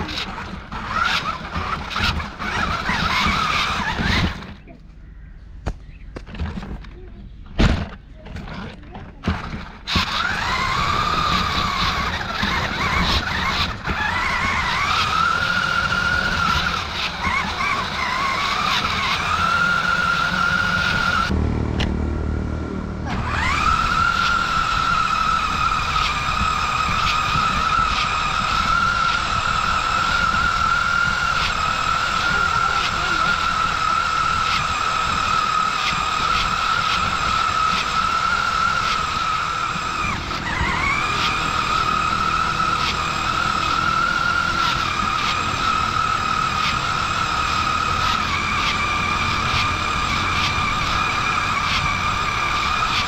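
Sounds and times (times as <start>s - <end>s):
toy truck motor whining: 0.0s - 4.6s, 7.8s - 21.4s, 23.0s - 53.0s
low running rumble: 7.0s - 53.0s.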